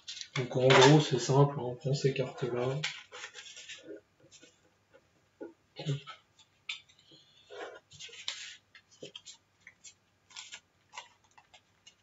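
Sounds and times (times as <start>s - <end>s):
cards being shuffled: 8.0s - 12.0s
plastic bag crinkling: 8.0s - 12.0s.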